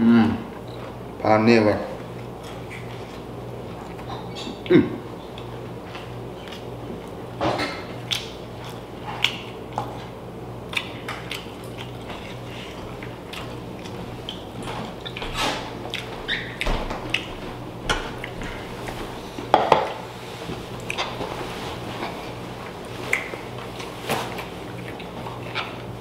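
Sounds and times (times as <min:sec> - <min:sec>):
steady low hum: 0:00.0 - 0:26.0
chewing and lip smacks: 0:07.8 - 0:17.3, 0:18.1 - 0:18.7, 0:20.8 - 0:21.2, 0:22.0 - 0:26.0.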